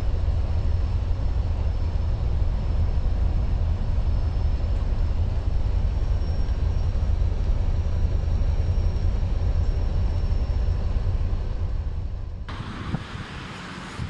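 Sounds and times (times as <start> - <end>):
truck engine and road rumble: 0.0 - 14.0
wind noise on microphone: 12.5 - 14.0.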